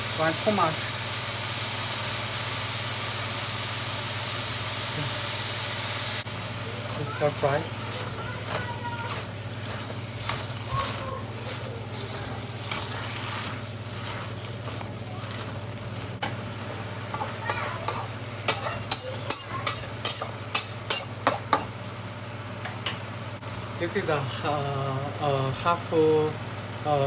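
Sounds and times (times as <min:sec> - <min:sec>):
cabbage sizzling in a wok: 0:00.0 - 0:27.0
metal spatula scraping a wok: 0:07.2 - 0:16.3, 0:17.1 - 0:21.7.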